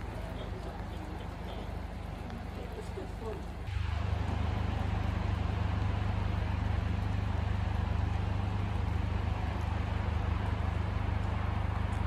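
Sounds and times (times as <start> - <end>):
engine idling drone: 0.0 - 12.0.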